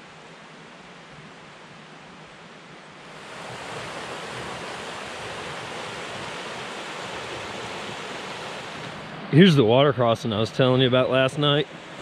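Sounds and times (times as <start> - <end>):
creek rushing over rocks: 2.9 - 12.0.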